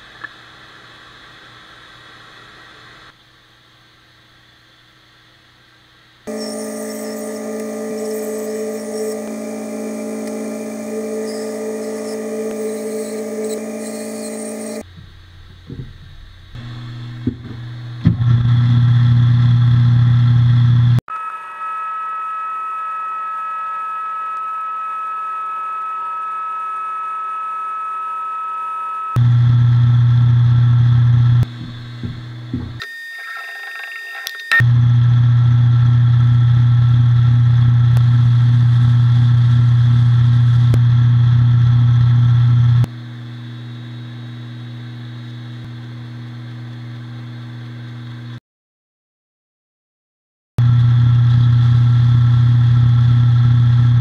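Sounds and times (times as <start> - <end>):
belt sander motor humming: 6.3 - 14.9
power tool whine: 6.3 - 14.9, 16.6 - 38.8
high-pitched whine: 6.3 - 45.8
knocks: 15.0 - 16.2.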